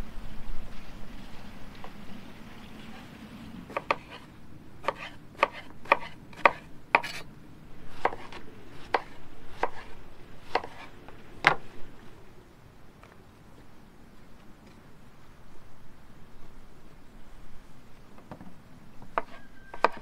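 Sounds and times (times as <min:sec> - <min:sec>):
knife cutting on wooden board: 0:03.7 - 0:07.3, 0:07.9 - 0:11.7, 0:19.2 - 0:20.0.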